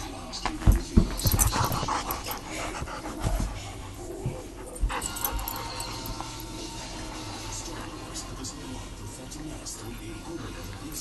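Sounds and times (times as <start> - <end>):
dog panting: 1.1 - 8.6.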